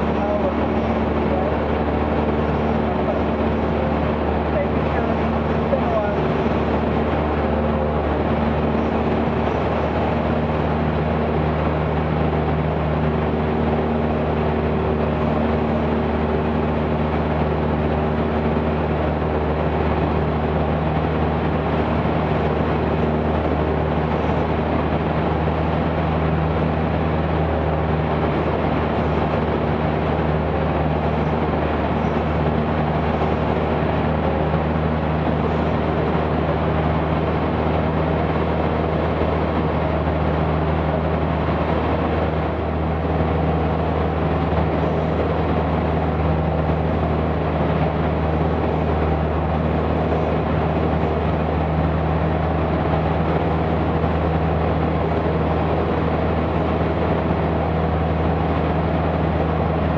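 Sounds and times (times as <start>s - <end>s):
airplane engine and propeller droning: 0.0s - 59.9s.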